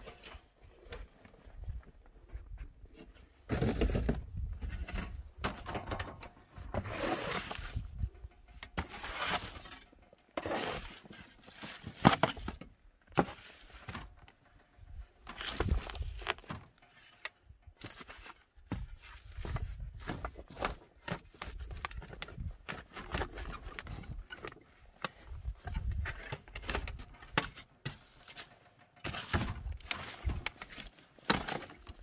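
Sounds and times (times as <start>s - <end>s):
hoe scraping wooden boards: 3.0s - 8.0s, 8.8s - 12.6s.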